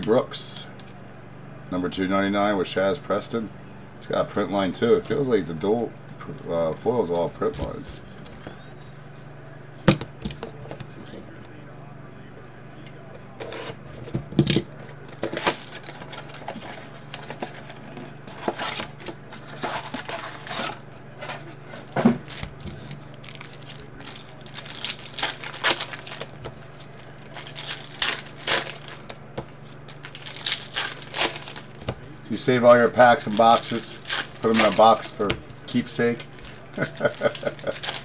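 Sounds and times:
plastic wrap crinkling and tearing: 15.0 - 20.8, 21.8 - 31.8, 32.9 - 35.2, 36.1 - 38.0.

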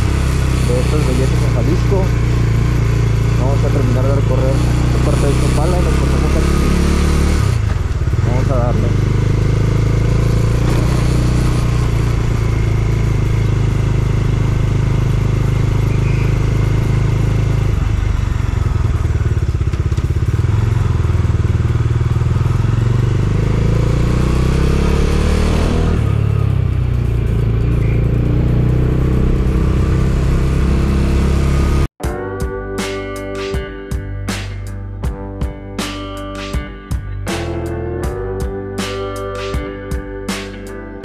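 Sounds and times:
motorcycle engine running: 0.0 - 31.9
acoustic guitar music: 32.0 - 41.0.

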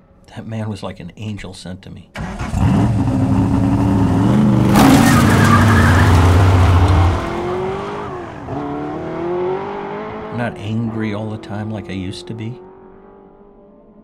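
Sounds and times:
tyres spinning in dirt: 2.2 - 8.0
car engine revving: 2.2 - 13.6.

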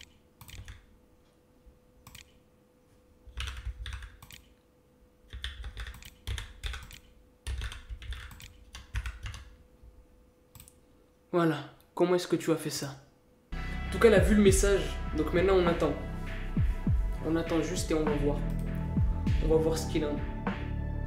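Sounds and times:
keyboard key clicks: 0.0 - 0.8, 3.4 - 4.6, 5.3 - 9.5
faint steady hum: 0.0 - 19.3.

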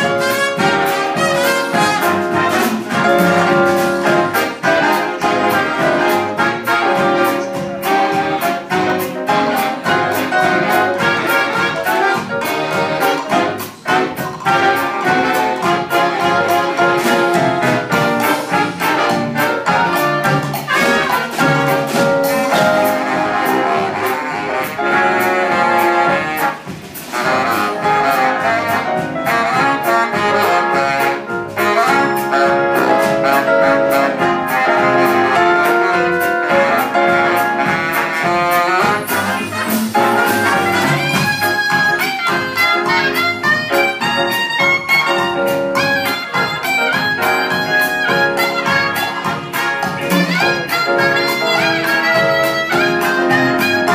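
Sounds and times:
big band playing jazz: 0.0 - 53.9.

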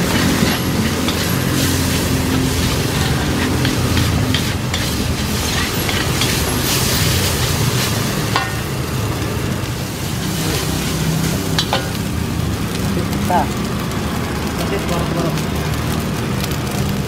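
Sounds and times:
metal spatula scraping a wok: 0.0 - 9.0, 9.8 - 12.4
steady low rumble: 0.0 - 14.8
food sizzling: 0.0 - 17.0.

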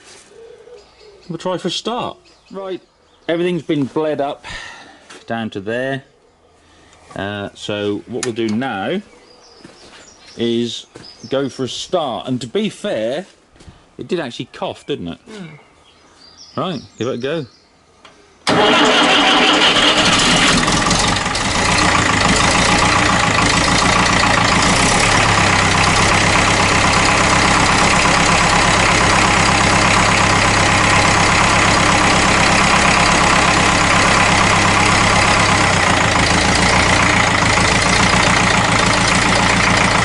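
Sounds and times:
diesel tractor engine running: 18.5 - 40.0.

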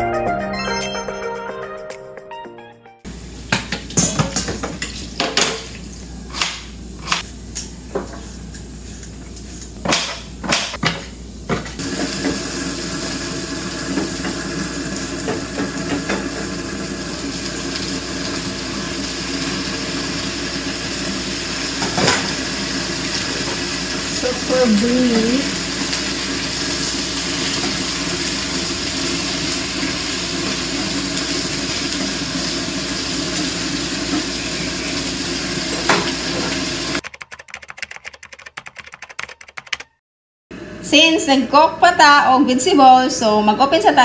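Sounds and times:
vegetables sizzling in pan: 11.8 - 37.0.

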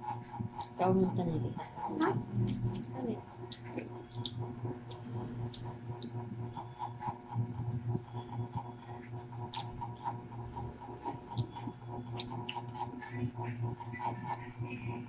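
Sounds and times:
steady low hum: 0.0 - 15.0
chewing crispy chicken: 0.1 - 0.8, 1.8 - 15.0
small crackles and clicks: 2.0 - 7.6, 8.3 - 10.2, 10.9 - 14.5.

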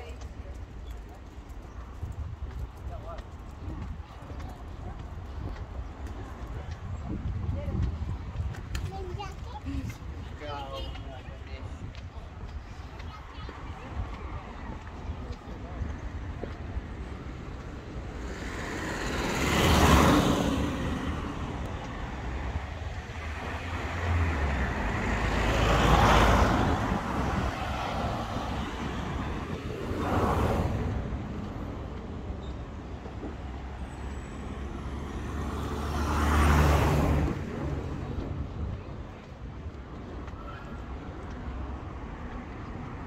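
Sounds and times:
cars passing by: 0.0 - 43.0.

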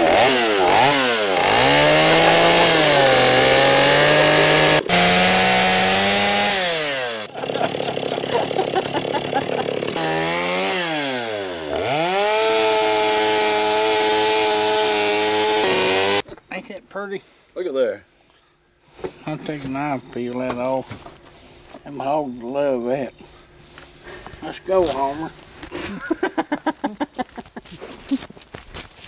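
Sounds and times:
chainsaw revving: 0.0 - 16.2
chainsaw shredding cabbage: 0.0 - 16.2.

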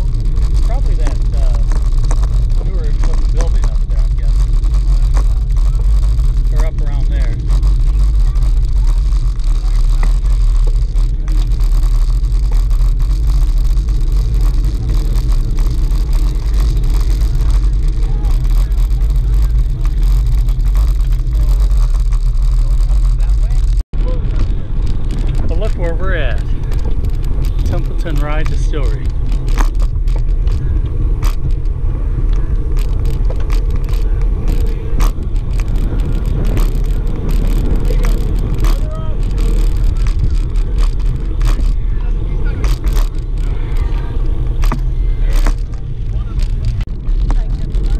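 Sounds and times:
bike clicks and knocks: 0.0 - 47.9
road noise: 0.0 - 47.9
wind buffeting microphone: 0.0 - 47.9.

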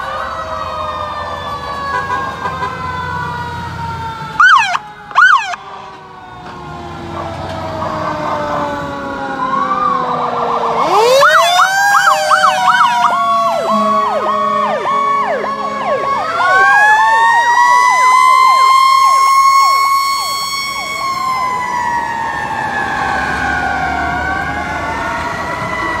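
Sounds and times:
emergency sirens wailing and yelping: 0.0 - 26.0.

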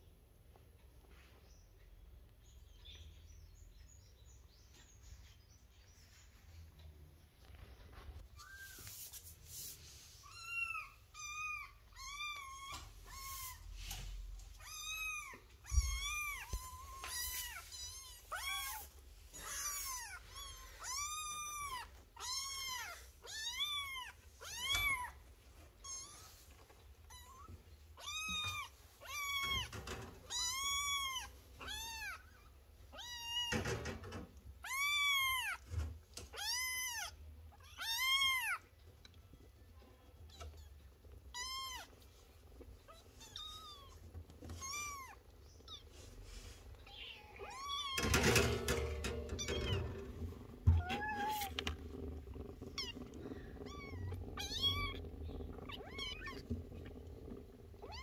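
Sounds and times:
kittens meowing: 10.3 - 26.4, 40.3 - 46.2, 46.8 - 58.0.

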